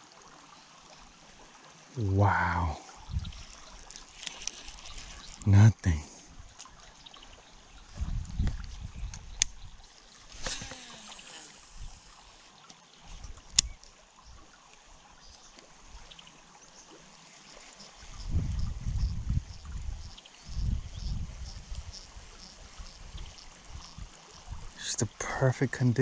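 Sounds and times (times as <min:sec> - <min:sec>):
creek water trickling: 0:00.0 - 0:26.0
wind gusting on microphone: 0:02.9 - 0:03.8, 0:07.8 - 0:11.0, 0:11.6 - 0:12.2, 0:18.1 - 0:24.8.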